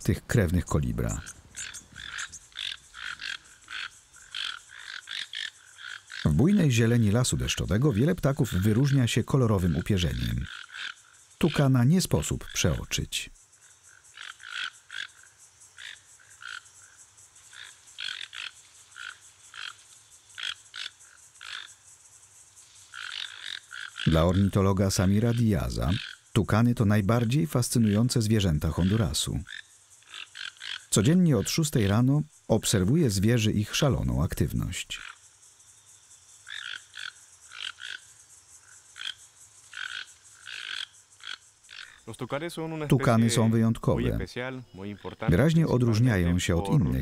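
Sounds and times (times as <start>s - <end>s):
toucan calling: 0.0s - 13.1s, 23.0s - 32.0s
toucan croaking calls: 0.0s - 21.9s, 22.8s - 35.3s, 36.3s - 47.0s
steady high-pitched hiss: 0.0s - 47.0s.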